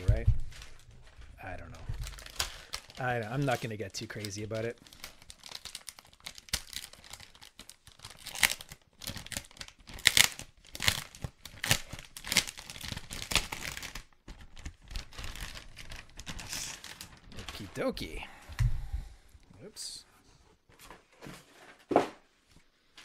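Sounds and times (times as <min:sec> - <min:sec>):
foil pouch crinkling and tearing: 0:01.5 - 0:18.0.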